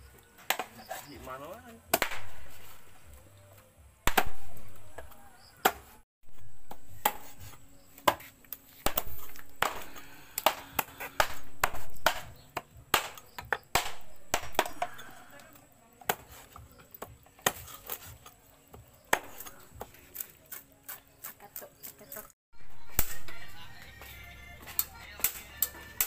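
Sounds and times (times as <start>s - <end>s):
cleaver chopping on wooden board: 0.4s - 0.8s, 4.1s - 5.9s, 6.7s - 15.1s, 16.1s - 18.1s, 19.1s - 21.4s.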